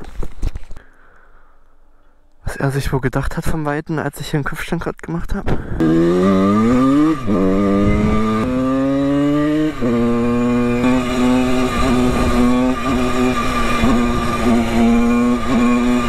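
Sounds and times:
moped engine revving and shifting: 5.8 - 16.0.

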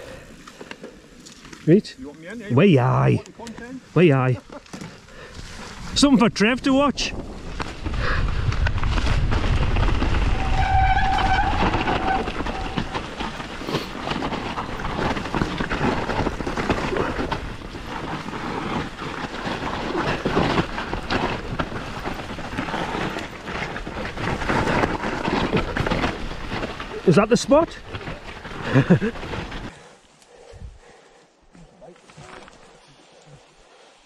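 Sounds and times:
bike tyres over dirt and roots: 0.0 - 34.0
wind buffeting microphone: 6.9 - 27.0
high squeal: 10.1 - 13.2.

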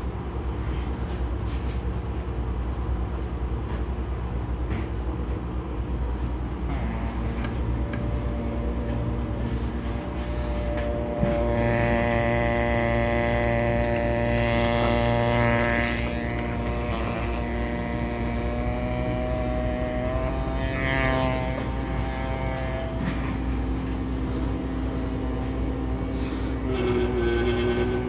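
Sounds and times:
motor humming: 6.6 - 28.0
buzzy high bursts: 6.7 - 28.0.

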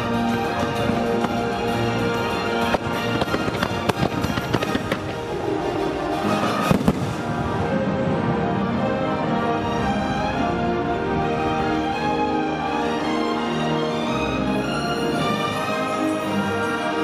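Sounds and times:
show music: 0.0 - 17.0
fireworks bangs: 0.6 - 8.3.

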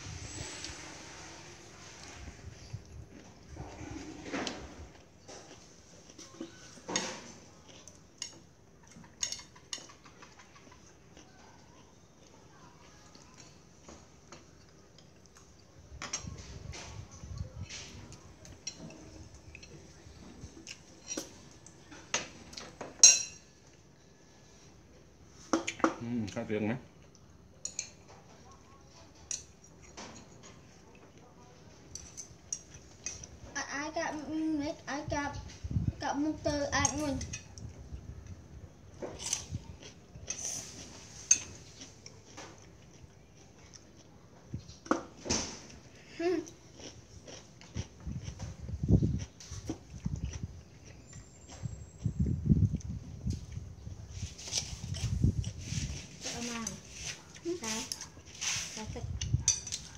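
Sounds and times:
utensils clinking on plates: 5.4 - 10.3, 20.6 - 23.8, 40.2 - 41.8, 59.4 - 59.9.

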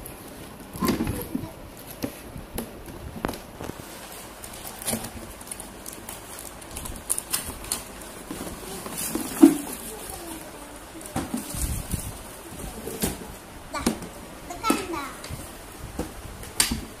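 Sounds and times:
cardboard packaging handled: 0.8 - 13.4.

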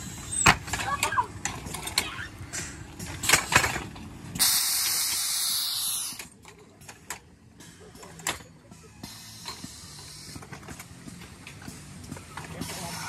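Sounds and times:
compressed-air hiss: 4.4 - 6.2, 9.0 - 10.6, 12.6 - 13.0.

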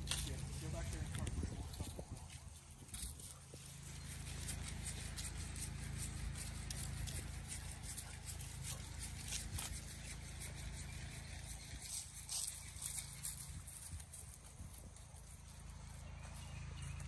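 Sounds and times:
wind rumble on microphone: 0.0 - 3.5, 11.0 - 17.0
leaves crunching underfoot: 0.0 - 16.4.

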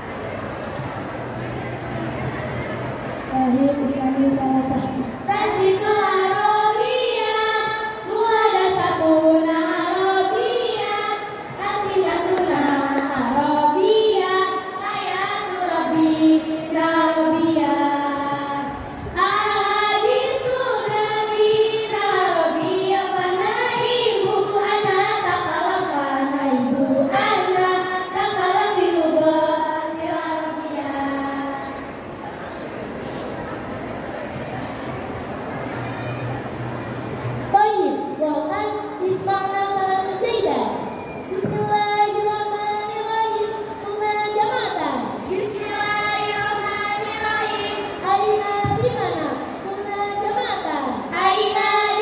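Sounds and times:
girls singing together: 4.8 - 32.0, 41.4 - 52.0.

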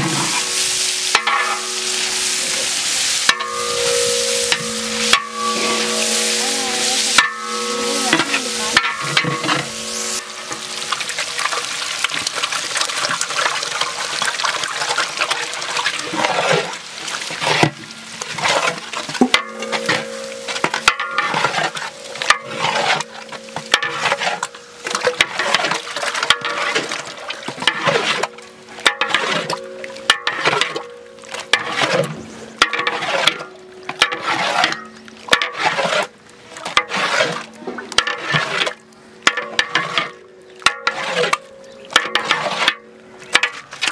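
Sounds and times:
metal spatula scraping a pot: 0.0 - 11.6, 17.3 - 43.9
steady hiss: 0.0 - 12.8.

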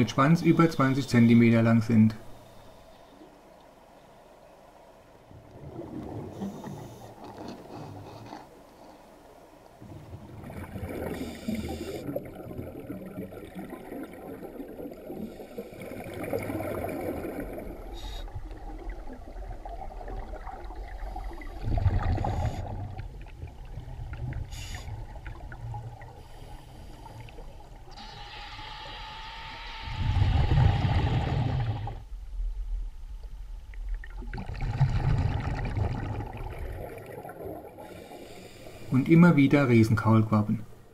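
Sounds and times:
underwater bubbles gurgling: 5.3 - 8.1, 9.8 - 39.0.

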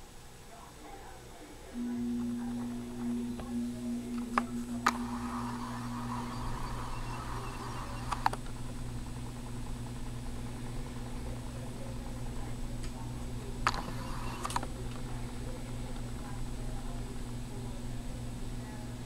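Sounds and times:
low mechanical hum: 0.0 - 19.0
sharp clicks: 8.0 - 8.6.

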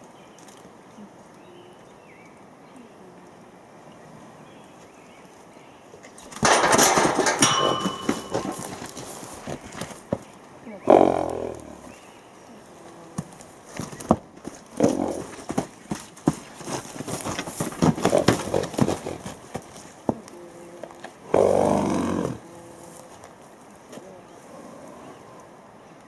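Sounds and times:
large farm animal calling: 10.6 - 13.3, 14.7 - 15.6, 20.1 - 23.2.

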